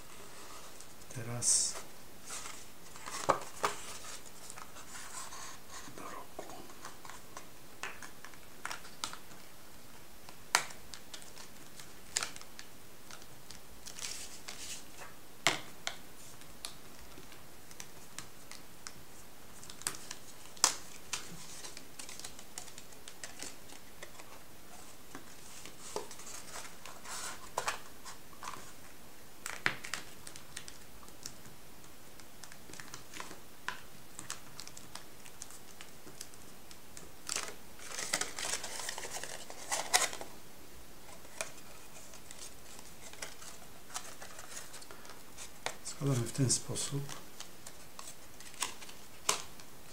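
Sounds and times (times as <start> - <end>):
metallised paper crinkling: 37.2 - 40.3, 41.0 - 49.9.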